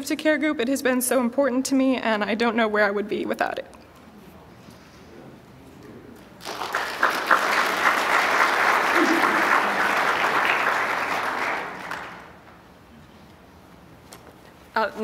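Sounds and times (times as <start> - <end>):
congregation applauding: 6.4 - 12.6.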